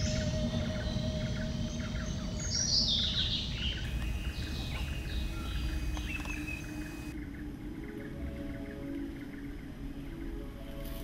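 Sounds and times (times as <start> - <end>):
low background rumble: 0.0 - 8.6
birds chirping and singing: 0.0 - 11.0.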